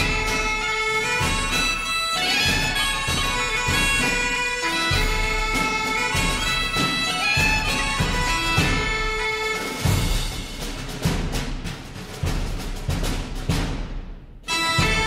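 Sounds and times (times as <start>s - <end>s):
bagpipes playing a tune: 0.0s - 10.4s, 14.5s - 15.0s
steady drum beat: 0.0s - 15.0s.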